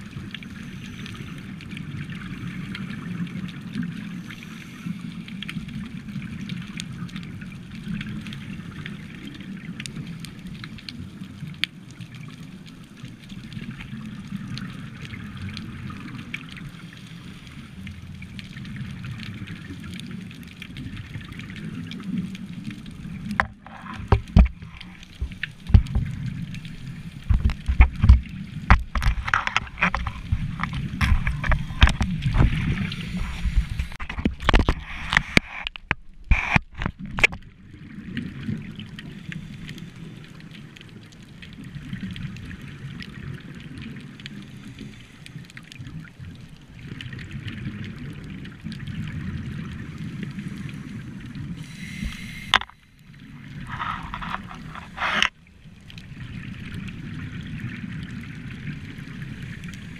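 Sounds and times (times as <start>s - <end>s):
low underwater rumble: 17.7s - 44.7s
faint hiss: 44.3s - 45.6s, 50.0s - 54.7s.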